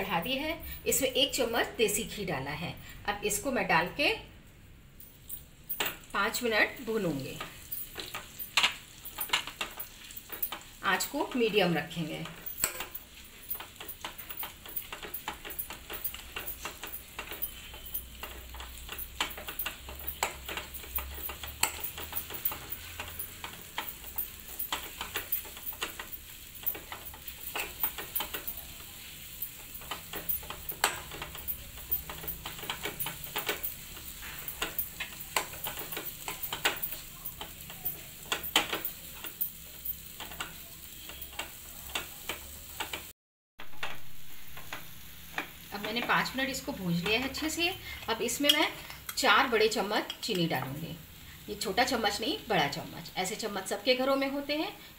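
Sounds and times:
spoon scraping and tapping pan: 5.7s - 6.1s, 7.1s - 43.1s, 43.7s - 47.5s
faint sizzle: 5.8s - 43.1s, 43.7s - 54.9s.

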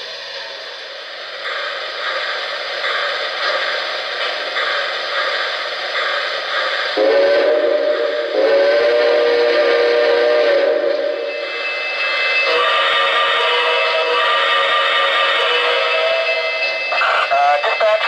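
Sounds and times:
model steam locomotive chuffing: 0.0s - 18.0s
chime steam whistle blasts: 7.0s - 18.0s.

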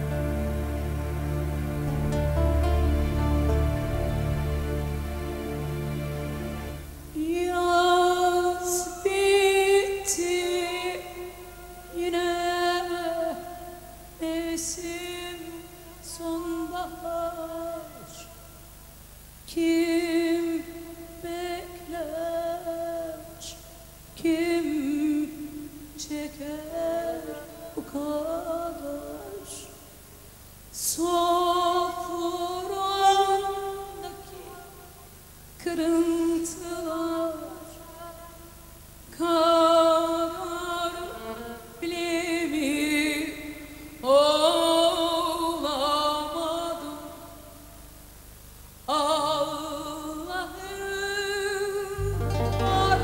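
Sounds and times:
faint instrumental backing: 0.0s - 7.2s, 52.0s - 53.0s
woman singing with vibrato: 7.1s - 18.8s, 19.4s - 30.0s, 30.7s - 47.8s, 48.9s - 53.0s.

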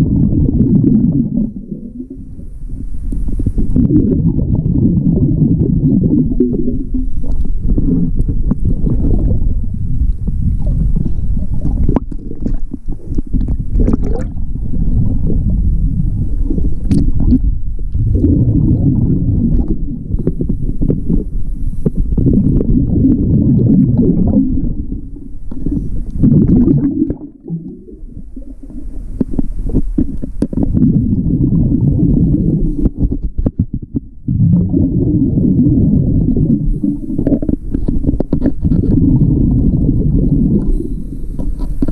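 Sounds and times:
air bubbles underwater: 0.0s - 41.9s
diver breathing through regulator: 36.4s - 41.9s.

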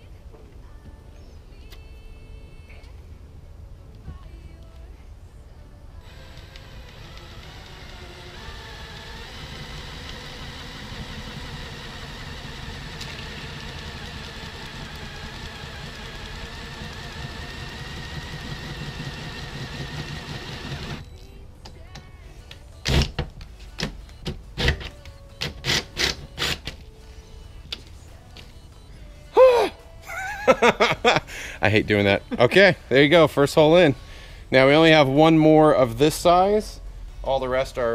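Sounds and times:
drill motor whining: 6.0s - 21.1s.

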